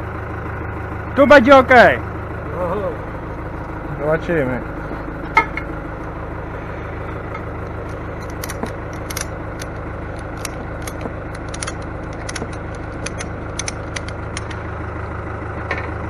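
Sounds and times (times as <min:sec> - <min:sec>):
engine idling: 0:00.0 - 0:16.0
sharp metallic clicks and clinks: 0:07.3 - 0:14.6.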